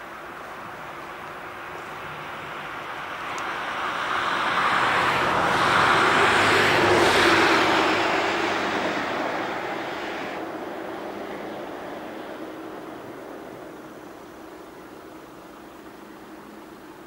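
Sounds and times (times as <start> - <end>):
vehicle passing by: 2.2 - 14.2.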